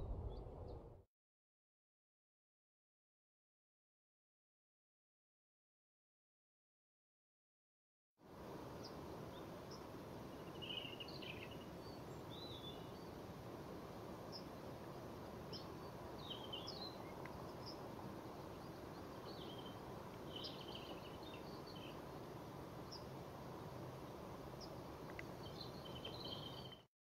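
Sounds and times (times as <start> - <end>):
low background rumble: 0.0 - 1.0
songbirds chirping: 8.4 - 26.9.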